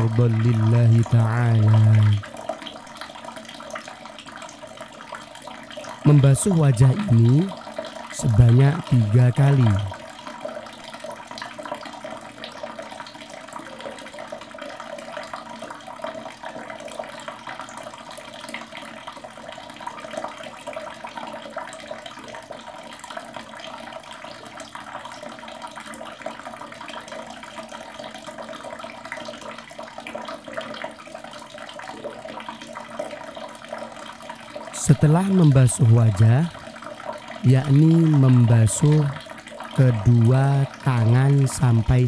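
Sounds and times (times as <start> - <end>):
water running from a tap: 0.0 - 42.0.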